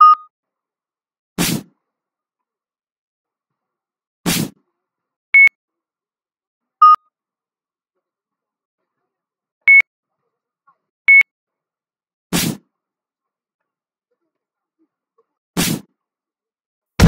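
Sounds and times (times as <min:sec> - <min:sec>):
short electronic beeps: 0:00.0 - 0:00.3, 0:06.8 - 0:07.1, 0:11.1 - 0:11.3.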